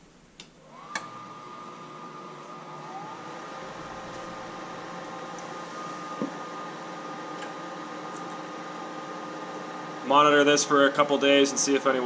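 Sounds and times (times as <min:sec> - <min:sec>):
click: 0:00.4 - 0:01.1
furnace fan motor whining: 0:00.4 - 0:12.0.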